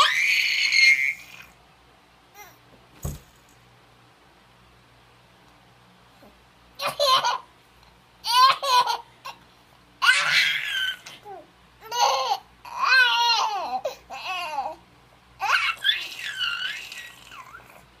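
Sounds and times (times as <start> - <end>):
baby giggling: 6.8 - 7.5, 8.2 - 9.4, 11.8 - 13.8.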